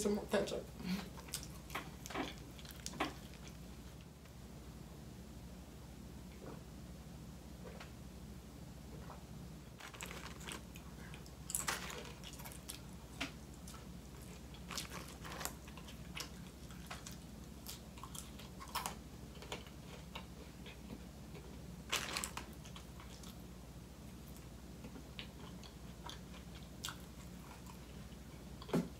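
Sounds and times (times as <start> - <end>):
person chewing fries: 1.0 - 4.0, 9.0 - 23.4, 24.2 - 28.7.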